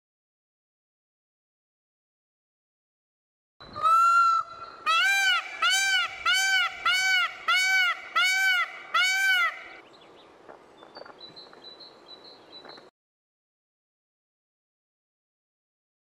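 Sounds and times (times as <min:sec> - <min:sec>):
peafowl honking: 0:03.8 - 0:09.8.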